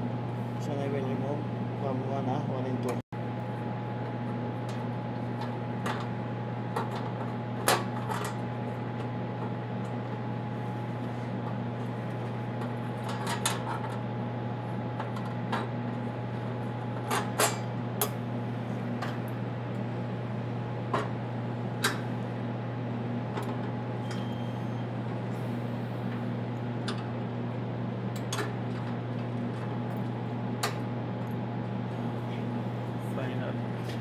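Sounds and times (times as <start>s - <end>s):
steady low hum: 0.0s - 34.0s.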